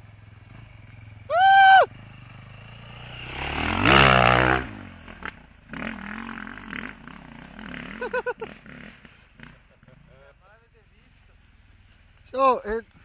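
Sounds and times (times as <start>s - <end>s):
motorcycle engine revving: 0.0s - 10.4s.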